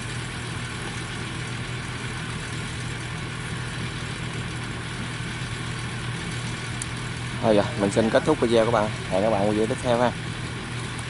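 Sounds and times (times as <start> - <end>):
combine harvester engine running: 0.0 - 11.0.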